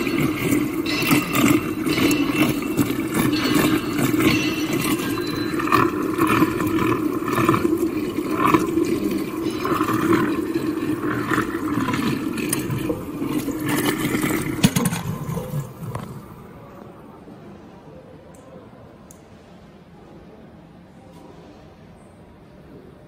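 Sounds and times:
mixer motor hum: 0.0s - 16.6s
water churning and sloshing: 0.0s - 16.9s.

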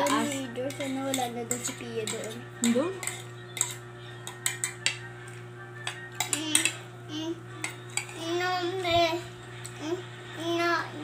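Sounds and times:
cutlery clinking on a plate: 0.0s - 5.1s, 5.8s - 6.8s
steady low hum: 0.0s - 11.0s.

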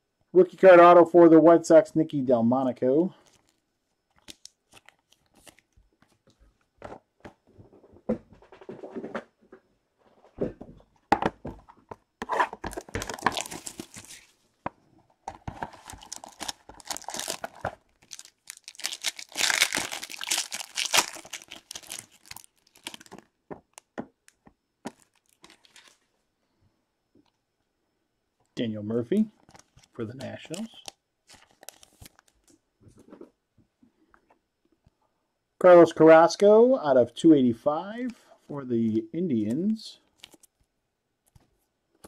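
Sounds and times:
packaging tearing and crinkling: 3.2s - 5.7s, 12.4s - 14.3s, 15.4s - 23.8s, 24.9s - 26.0s, 30.5s - 32.4s, 40.2s - 40.5s.

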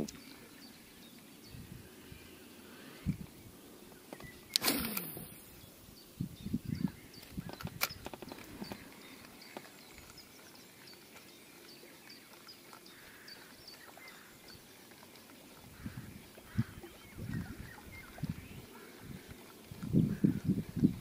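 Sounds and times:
sharp click: 4.5s - 5.4s.

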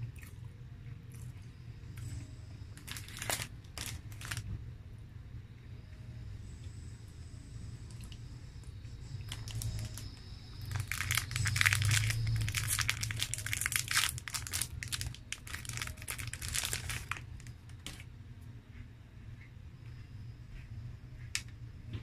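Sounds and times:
plastic wrapper crinkling: 2.0s - 4.6s, 9.2s - 18.0s.

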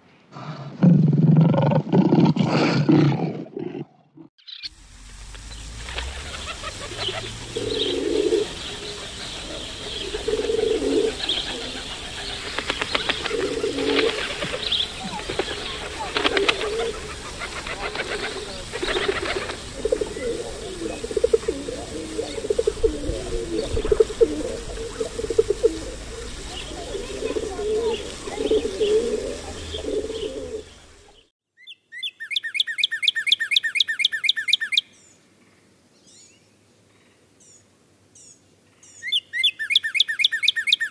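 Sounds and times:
wings flapping: 5.2s - 30.6s
pigeons cooing: 6.0s - 31.1s
bird trilling: 6.1s - 30.9s, 31.6s - 35.0s, 39.0s - 40.9s.

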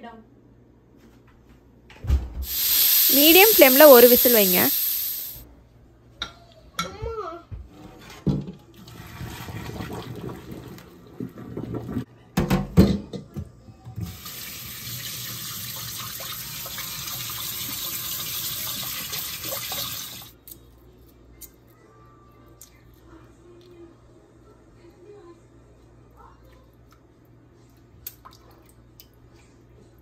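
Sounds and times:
tap water running into pot: 2.4s - 5.4s, 14.0s - 20.3s.

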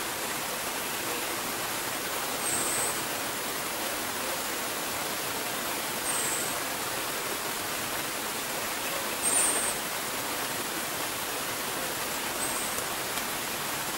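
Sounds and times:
gurgling stream rushing: 0.0s - 13.9s
high thin bird calls: 9.2s - 9.9s.

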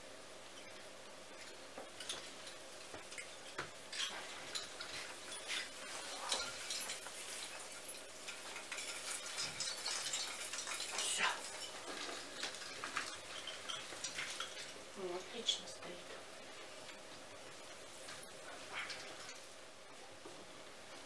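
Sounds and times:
gift wrapping rustling: 4.2s - 14.8s.

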